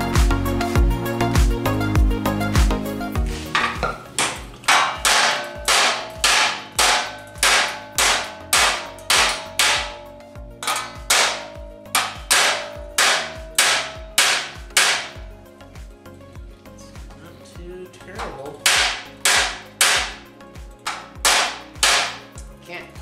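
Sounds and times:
hammer blows on steel panel: 4.2 - 15.4, 18.6 - 20.3, 20.9 - 22.3.

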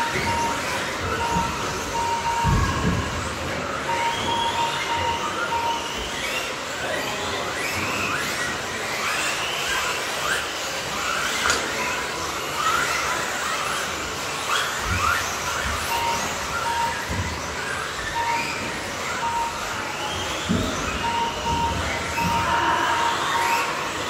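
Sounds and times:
short electronic beeps: 0.0 - 6.5, 15.6 - 24.0
electric motors whining: 0.0 - 24.0.

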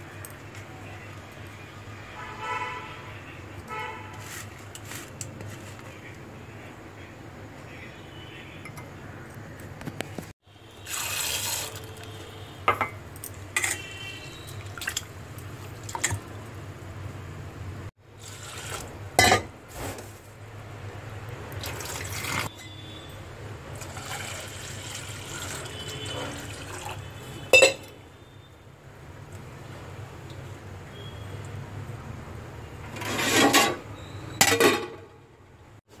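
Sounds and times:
water pouring and sloshing over grain: 10.8 - 12.3, 14.4 - 16.3, 18.2 - 19.0, 21.5 - 22.5, 23.8 - 27.2
steel utensils clinking: 27.5 - 27.9, 32.9 - 35.1.

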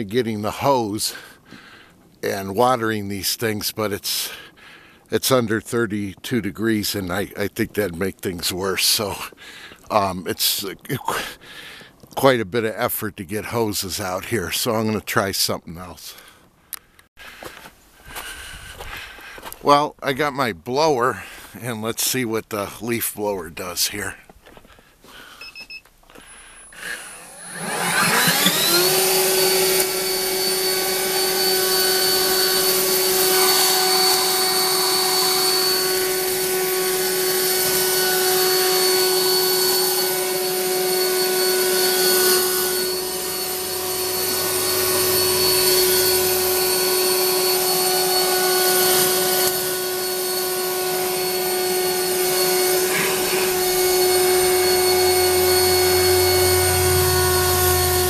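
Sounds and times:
leaf blower whining: 23.8 - 58.0.

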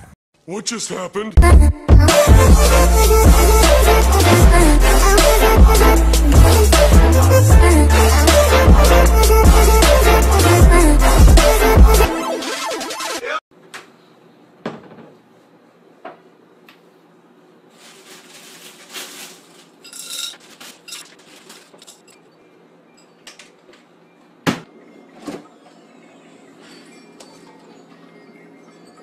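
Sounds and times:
items rustling and clicking in freezer: 17.7 - 22.2.

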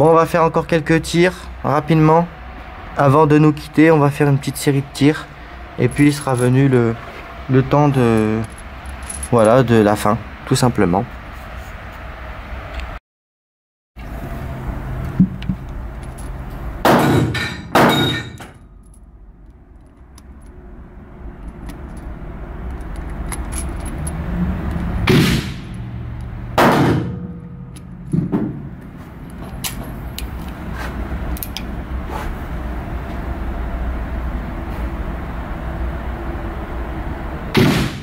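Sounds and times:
gunshots echoing indoors: 26.6 - 27.5.

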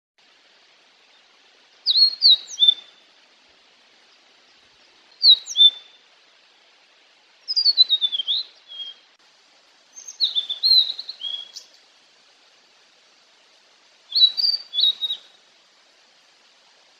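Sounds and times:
bird singing whistled notes: 1.8 - 3.0, 5.1 - 6.0, 7.5 - 9.1, 9.9 - 11.8, 14.1 - 15.4.

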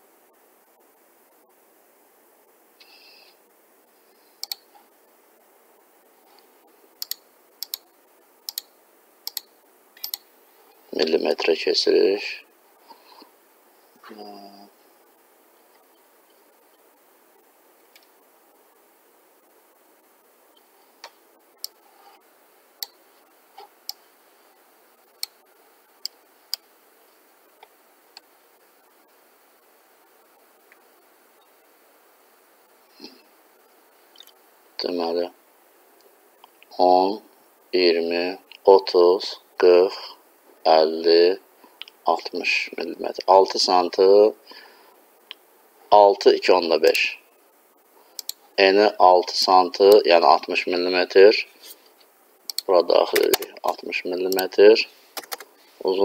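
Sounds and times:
faint steady hiss: 0.0 - 56.0
computer mouse clicking: 4.4 - 4.7, 7.0 - 7.8, 8.4 - 10.2, 52.5 - 53.6, 55.2 - 55.5.

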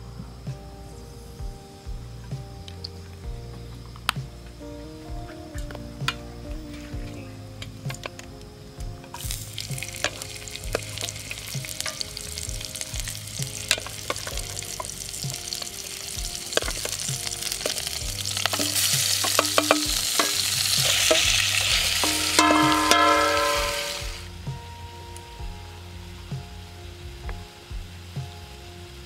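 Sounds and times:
meat sizzling in hot oil: 9.2 - 24.3.

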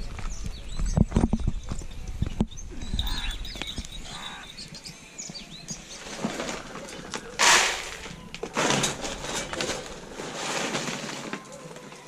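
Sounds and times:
birds chirping: 0.0 - 8.5.

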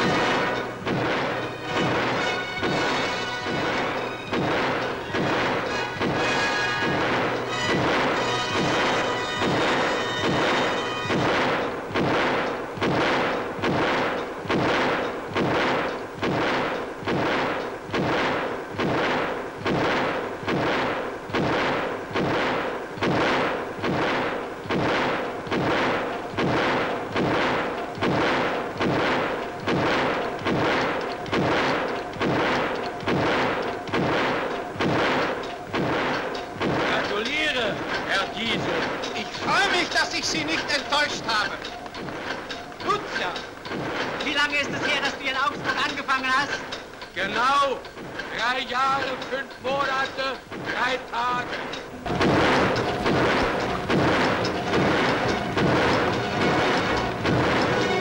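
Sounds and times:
music: 0.0 - 11.5, 52.1 - 58.0
diesel engine firing bangs: 0.0 - 58.0.

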